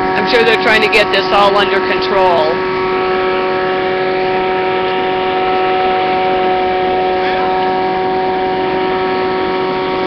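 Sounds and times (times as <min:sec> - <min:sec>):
vacuum unit droning: 0:00.0 - 0:10.0.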